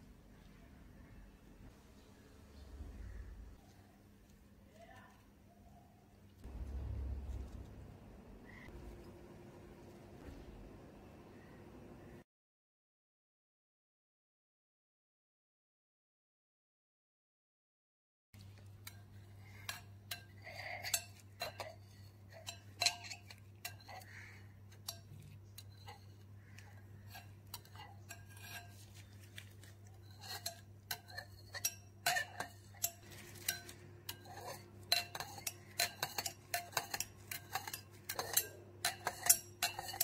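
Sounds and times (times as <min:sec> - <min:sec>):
low hum: 0:06.4 - 0:12.2
metal spoon clinking glass bowl: 0:19.6 - 0:24.1, 0:24.7 - 0:29.2, 0:29.9 - 0:40.0.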